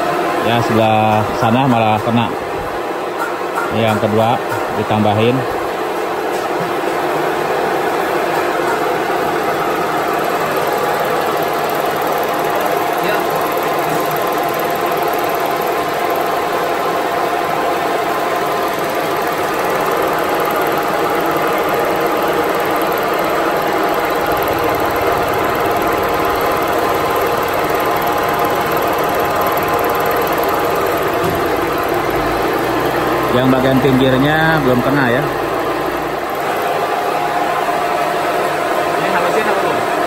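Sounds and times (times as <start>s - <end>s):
milling machine whine: 3.7s - 40.0s.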